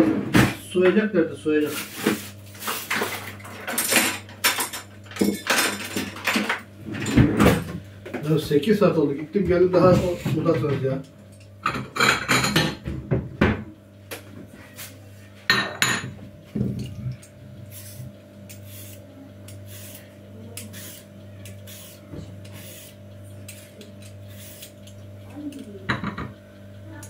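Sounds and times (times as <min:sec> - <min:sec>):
dishes clattering: 0:02.9 - 0:07.7, 0:11.6 - 0:13.6, 0:15.5 - 0:17.0, 0:25.9 - 0:26.4.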